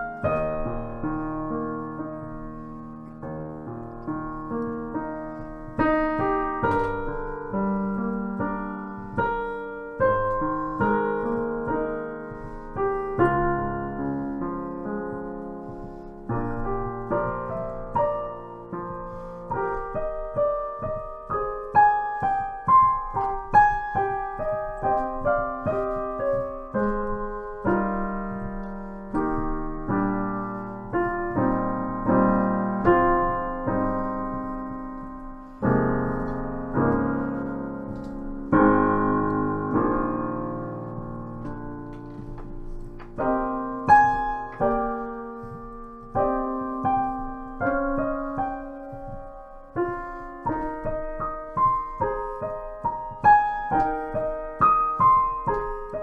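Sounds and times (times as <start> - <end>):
solo piano music: 0.0 - 56.0.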